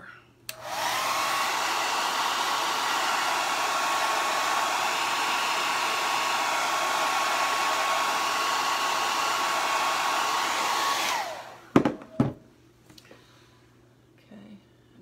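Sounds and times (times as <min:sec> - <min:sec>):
hair dryer switch click: 0:00.5 - 0:01.5
hair dryer blowing: 0:00.5 - 0:12.3.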